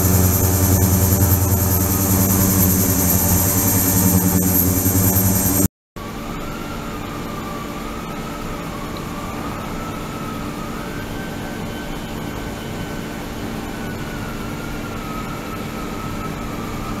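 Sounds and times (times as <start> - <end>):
faint wavering whistle tone: 0.0 - 5.7
ultrasonic tank hiss and hum: 0.0 - 5.7.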